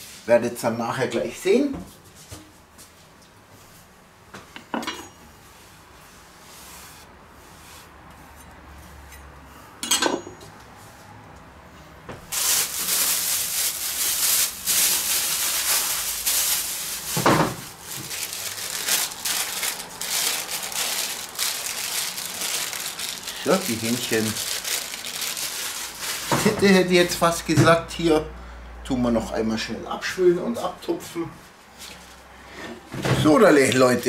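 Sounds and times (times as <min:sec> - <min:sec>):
plastic packaging crinkling: 0:12.3 - 0:26.7, 0:33.4 - 0:34.0.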